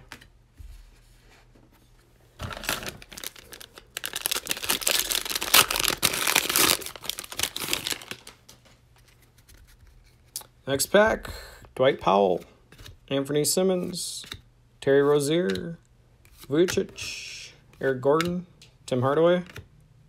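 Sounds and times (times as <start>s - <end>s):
foil wrapper crinkling and tearing: 2.5s - 8.4s.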